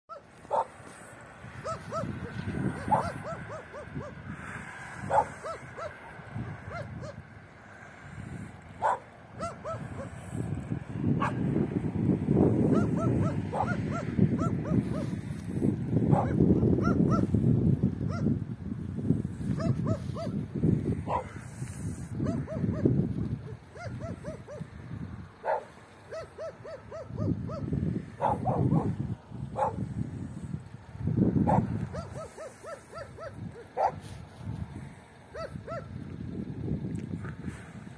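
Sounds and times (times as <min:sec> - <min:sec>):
wind rumbling on microphone: 0:00.1 - 0:37.9
dog yapping: 0:01.6 - 0:04.2, 0:05.1 - 0:06.1, 0:08.8 - 0:10.1, 0:12.7 - 0:15.1, 0:25.5 - 0:28.9.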